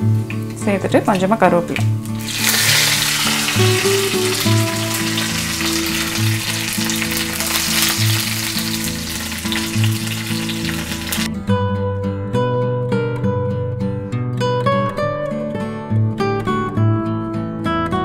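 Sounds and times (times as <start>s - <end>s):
spices sizzling in hot oil: 1.9s - 11.3s.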